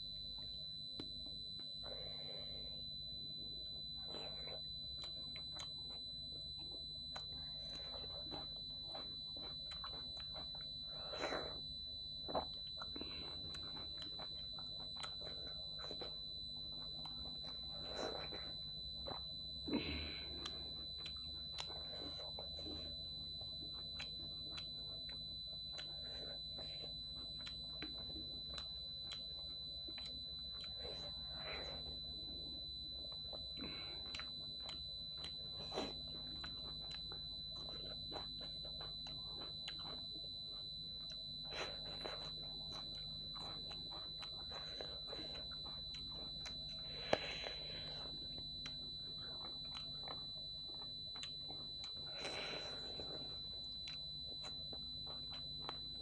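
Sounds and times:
low hum: 0.0 - 56.0
wet chewing and smacking: 0.0 - 56.0
fingers in food: 48.2 - 56.0.

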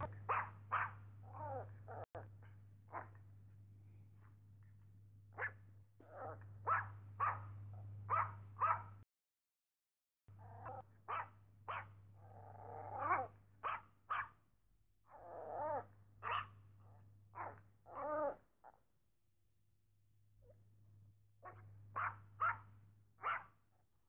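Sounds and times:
dog barking: 0.0 - 3.3, 5.3 - 9.0, 10.4 - 14.4, 15.6 - 18.8, 21.4 - 23.6.

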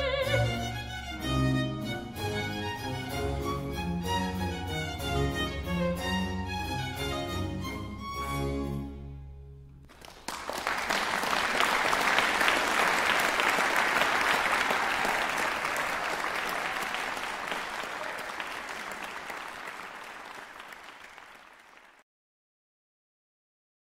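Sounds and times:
string chord: 0.1 - 9.6
audience applauding: 9.9 - 22.0.

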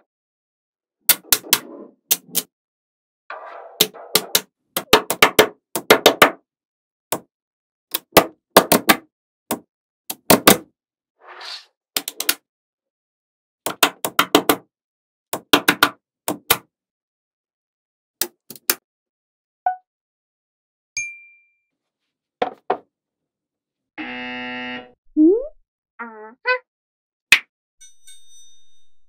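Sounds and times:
buzzing sound effect: 24.0 - 25.0.

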